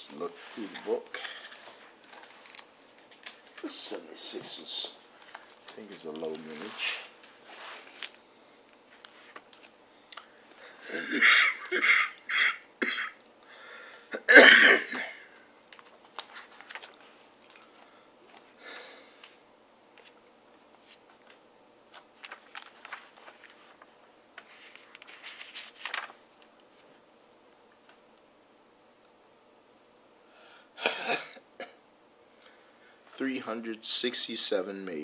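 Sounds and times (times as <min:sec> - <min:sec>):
faint clicks and rustles: 0:04.7 - 0:10.6, 0:15.7 - 0:18.5, 0:19.2 - 0:28.2
man coughing: 0:10.7 - 0:13.2, 0:14.1 - 0:15.4, 0:30.8 - 0:31.8.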